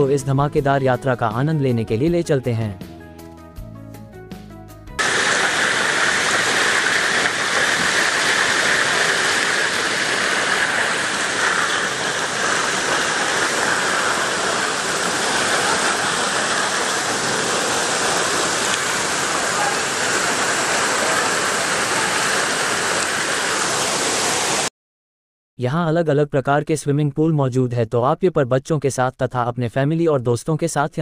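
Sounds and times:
water rushing and splashing: 0:05.0 - 0:24.7.

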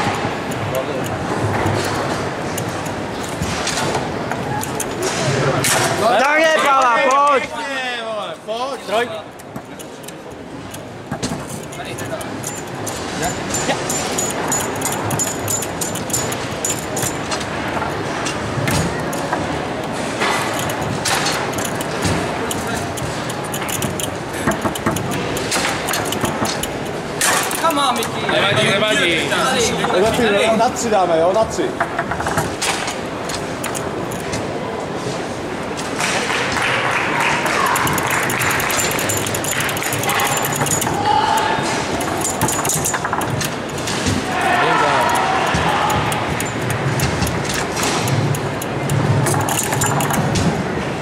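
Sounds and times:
foosball players striking ball: 0:00.0 - 0:06.0, 0:09.4 - 0:28.8, 0:31.7 - 0:34.6, 0:36.0 - 0:51.0
metal rods rattling: 0:00.0 - 0:06.0, 0:09.3 - 0:28.4, 0:31.9 - 0:34.4, 0:37.5 - 0:50.6
onlookers talking: 0:44.1 - 0:48.2.

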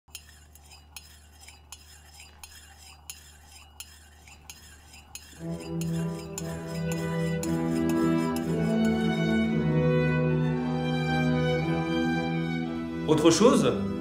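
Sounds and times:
spoon clinking against a cup: 0:00.1 - 0:09.1
slow cello music: 0:05.4 - 0:14.0.

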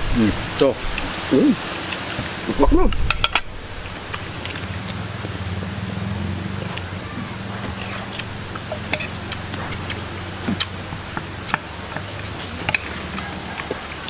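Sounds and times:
people chewing and biting: 0:00.9 - 0:03.1, 0:03.9 - 0:14.0
mouth clicks and smacks: 0:07.6 - 0:14.0.

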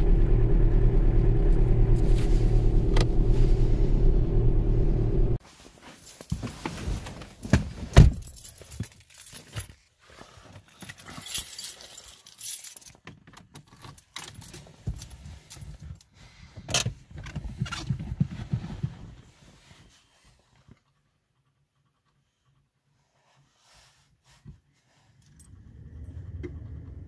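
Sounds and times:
car keys jangling: 0:10.8 - 0:15.9.

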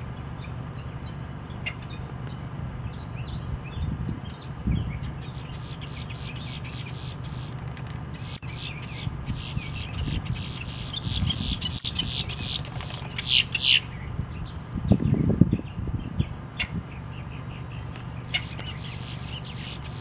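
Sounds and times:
grackle dry clicking calls: 0:05.2 - 0:14.0, 0:17.4 - 0:20.0.

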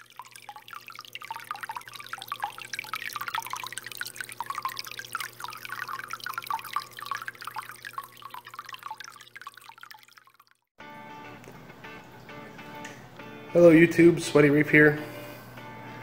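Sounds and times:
pump humming: 0:00.0 - 0:10.4
water trickling and splashing: 0:00.0 - 0:10.7.

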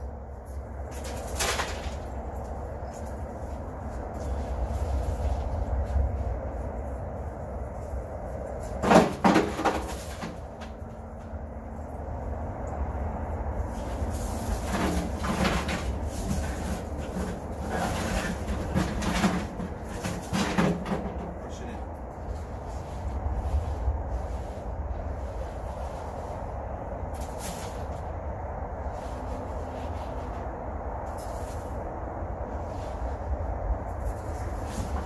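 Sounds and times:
stone chunks clunking in wheelbarrow: 0:08.8 - 0:10.4.

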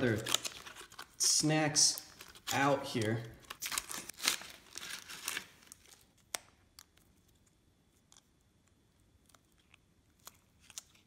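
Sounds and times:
foil pouch crinkling and rustling: 0:00.0 - 0:07.4, 0:10.1 - 0:11.0.

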